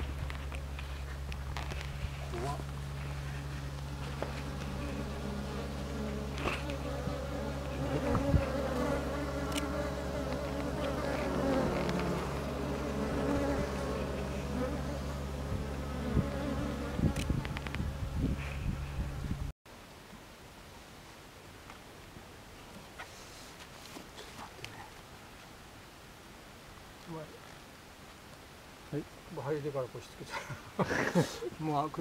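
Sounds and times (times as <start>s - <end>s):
bees buzzing: 1.9s - 19.3s.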